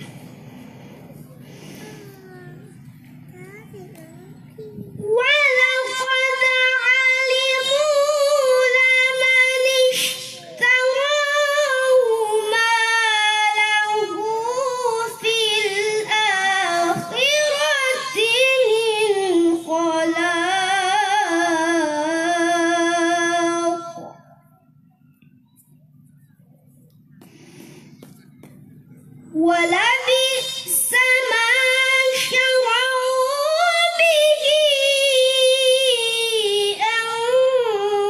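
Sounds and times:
boy reciting melodically: 1.2 - 24.2, 29.2 - 38.0.

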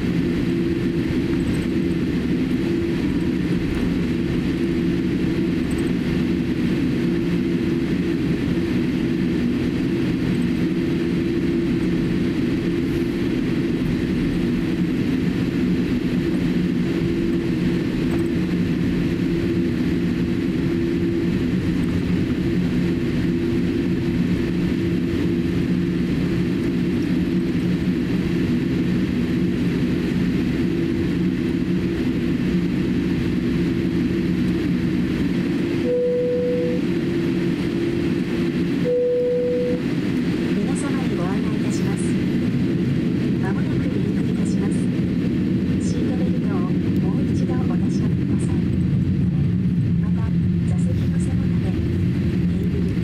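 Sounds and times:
aircraft engines humming: 0.0 - 53.0
low droning tones: 0.0 - 53.0
short high tone: 35.9 - 36.8, 38.9 - 39.8.

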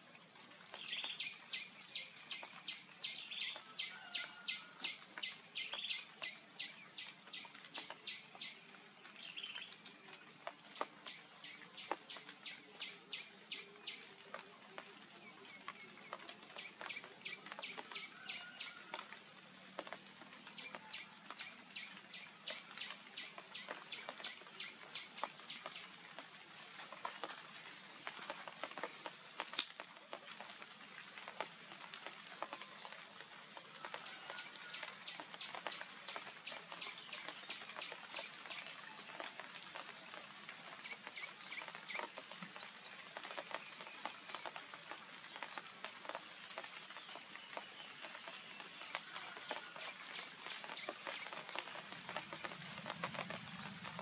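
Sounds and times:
faint ticks and clicks: 31.2 - 54.0.

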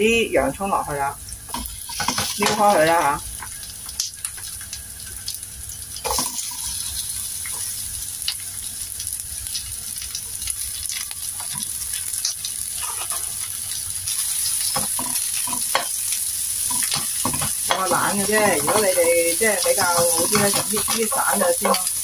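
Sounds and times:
onion and garlic sizzling: 0.0 - 22.0
spatula scraping pan: 12.7 - 16.0, 16.6 - 22.0.

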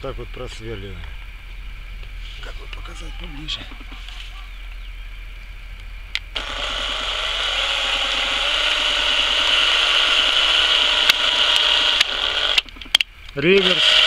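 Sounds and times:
drill boring through plastic: 6.4 - 12.7, 13.5 - 14.0.

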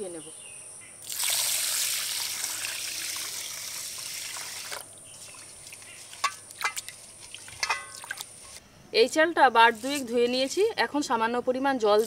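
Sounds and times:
water pouring into steel bowl: 1.1 - 4.8
water splashes and knocks: 3.9 - 8.6.

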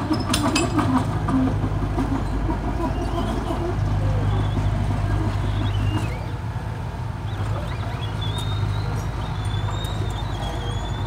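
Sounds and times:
bulldozer diesel engine: 0.0 - 11.0
high wavering bird calls: 0.8 - 6.5, 7.2 - 11.0.

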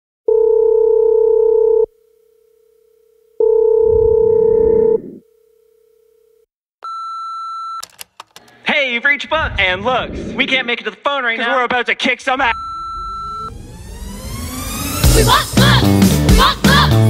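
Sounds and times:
low rumble: 9.3 - 10.8, 12.4 - 16.0
answering machine beep: 12.5 - 13.6.

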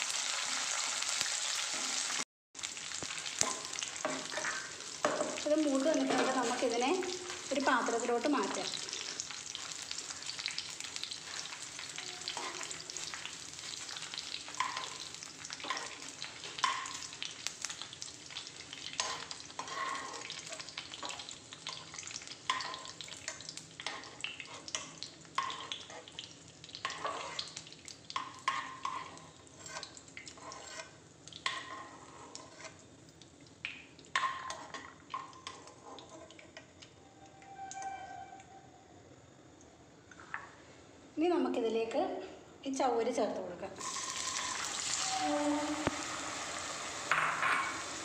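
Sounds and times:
nuts sizzling in hot fat: 0.0 - 38.4, 43.8 - 48.0
metal spoon scraping a pan: 3.4 - 26.2, 26.8 - 27.6, 28.2 - 32.8, 34.2 - 36.7.

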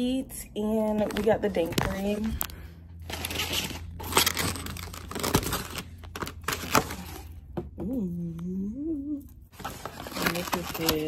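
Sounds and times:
foam box crinkling and clicking: 3.1 - 7.3
person humming: 7.8 - 9.4.

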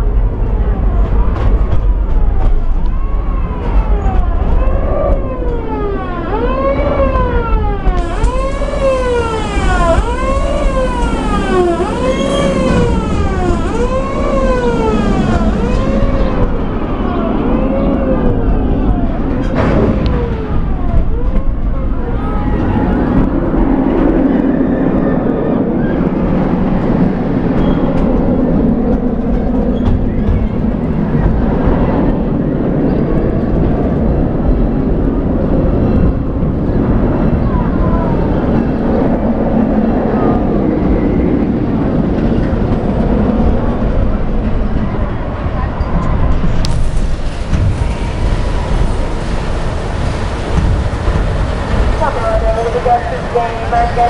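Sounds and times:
low rumble of moving train: 0.0 - 54.0
fire siren wailing: 0.3 - 27.5.

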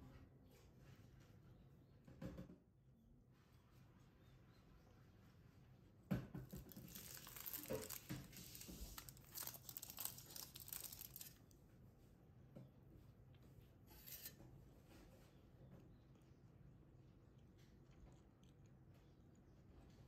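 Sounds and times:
bread wrapper crinkling and tearing: 6.6 - 11.6.

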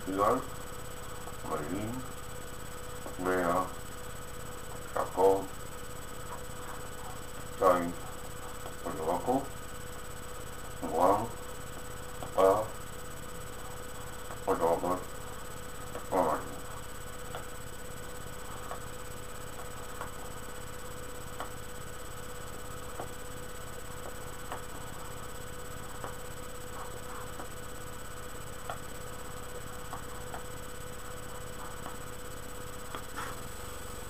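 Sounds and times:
electrical hum and hiss: 0.0 - 34.0.

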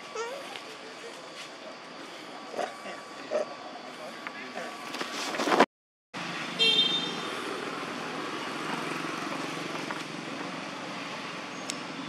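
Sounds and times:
traffic running steadily: 0.0 - 5.6, 6.2 - 12.0
vehicle horn toot: 6.6 - 7.3.

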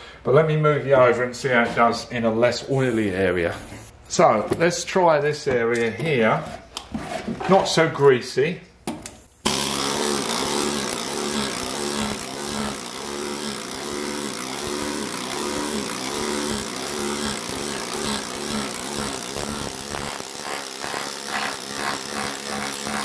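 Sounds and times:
needle scaler hammering metal: 9.4 - 23.0.

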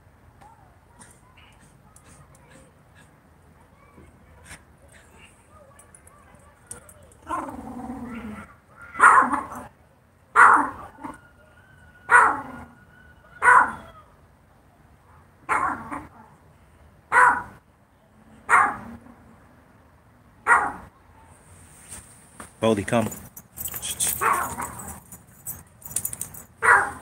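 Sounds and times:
dog barking: 8.9 - 9.7, 10.4 - 11.1, 12.1 - 12.7, 13.4 - 13.9, 15.5 - 16.1, 17.1 - 17.6, 18.5 - 18.9, 20.4 - 20.9, 24.1 - 25.0, 26.6 - 27.0.

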